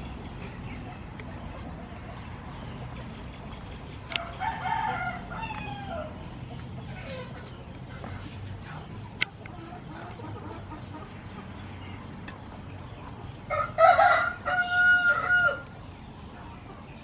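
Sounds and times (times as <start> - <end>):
rooster crowing: 4.2 - 6.1, 13.5 - 15.7.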